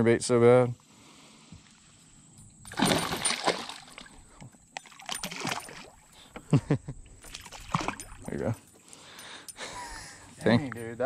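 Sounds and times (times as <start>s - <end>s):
fish splashing at surface: 2.7s - 4.2s, 4.8s - 6.1s, 7.2s - 8.3s.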